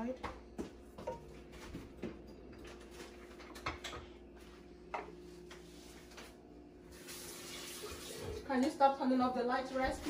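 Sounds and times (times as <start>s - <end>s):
kitchen clicks and knocks: 1.0s - 4.2s.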